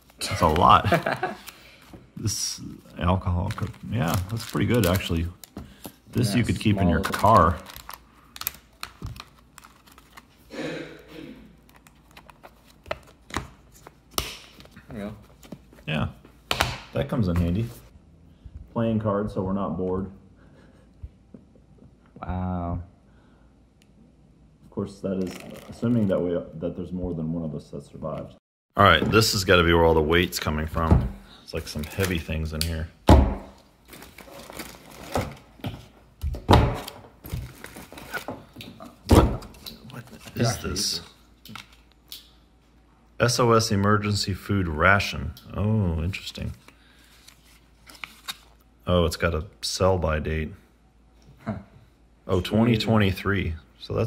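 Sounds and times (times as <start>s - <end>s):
packaging rustling: 2.8s - 10.5s, 33.8s - 35.6s, 37.2s - 38.5s.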